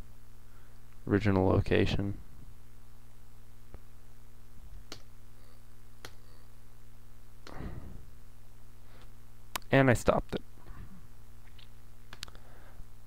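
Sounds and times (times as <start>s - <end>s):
low electrical hum: 0.0s - 13.0s
soft breath-like rush: 7.4s - 8.2s, 12.3s - 12.9s
faint sharp clicks: 11.5s - 12.4s.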